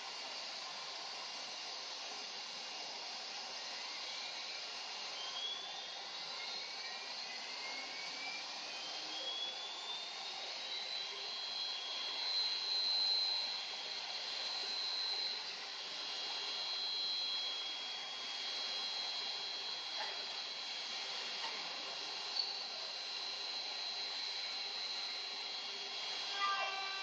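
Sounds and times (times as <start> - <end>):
spindle motor whine: 0.0 - 27.0.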